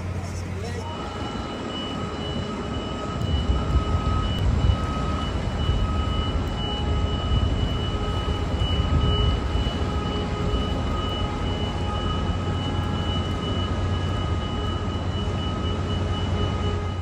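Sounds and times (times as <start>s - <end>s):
high-pitched steady tone: 0.0s - 17.0s
low rumbling noise: 0.0s - 17.0s
faint second tone: 0.8s - 17.0s.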